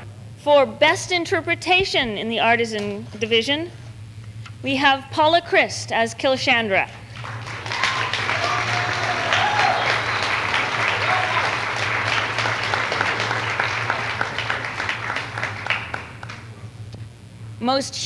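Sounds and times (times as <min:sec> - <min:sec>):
audience applauding: 0:07.1 - 0:16.5.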